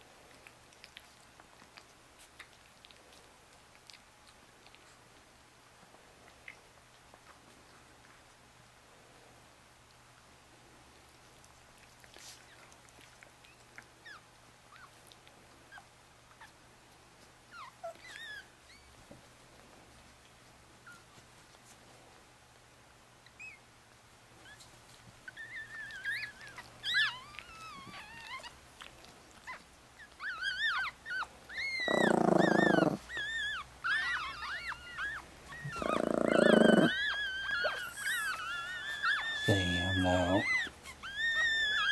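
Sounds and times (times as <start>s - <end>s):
puppies squeaking and whimpering: 17.5s - 19.0s, 23.2s - 23.7s, 24.4s - 41.9s.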